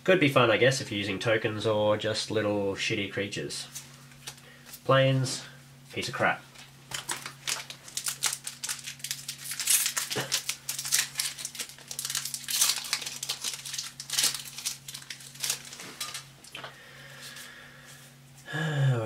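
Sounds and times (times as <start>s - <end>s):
plastic wrapper crinkling: 6.6s - 16.6s.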